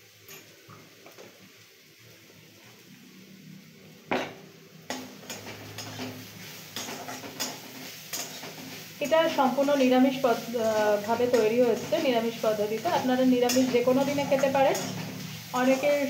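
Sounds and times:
faint sizzle: 0.0 - 16.0
steel spatula scraping a pan: 4.9 - 16.0.

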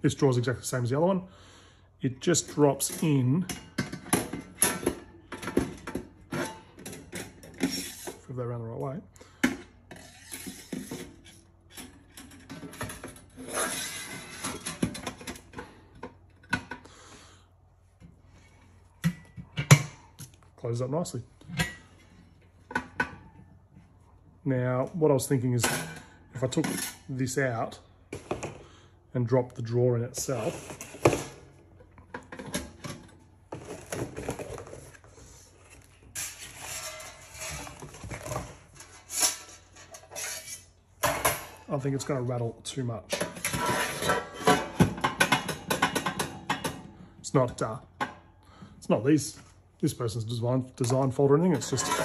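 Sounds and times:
metal trays clinking and scraping: 2.3 - 8.4, 9.4 - 16.8, 25.6 - 28.5, 30.2 - 35.3, 36.1 - 41.7, 43.0 - 47.0, 50.8 - 52.0
metal tray scraping on metal: 13.2 - 14.8, 36.2 - 38.1, 38.7 - 40.7, 43.2 - 44.8, 51.6 - 52.0.

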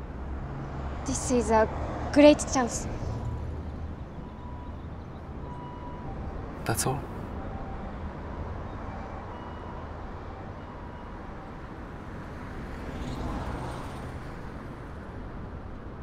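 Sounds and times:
distant road rumble: 0.0 - 7.4
vehicle passing: 0.3 - 3.9.

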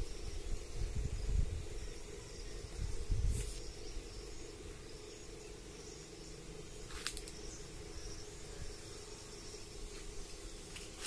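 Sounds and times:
wind buffeting microphone: 0.0 - 1.9, 2.6 - 3.6
insects chirring: 0.0 - 11.0
low steady hum: 0.0 - 11.0
sharp click: 6.9 - 7.4.

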